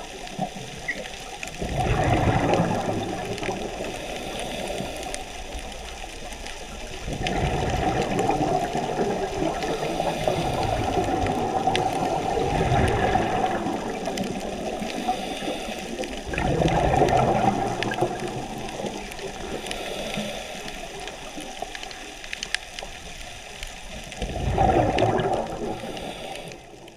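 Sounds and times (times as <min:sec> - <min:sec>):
underwater breath bubbling: 0:00.0 - 0:22.9, 0:23.5 - 0:26.9
faint clicks: 0:00.1 - 0:26.9.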